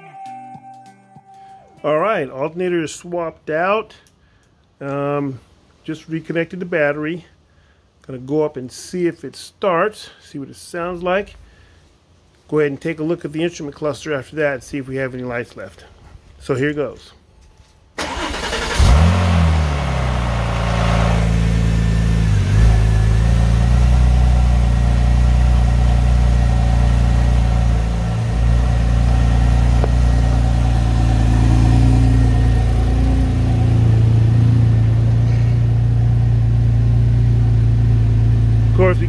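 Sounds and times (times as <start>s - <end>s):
car engine starting and idling: 18.0s - 39.0s.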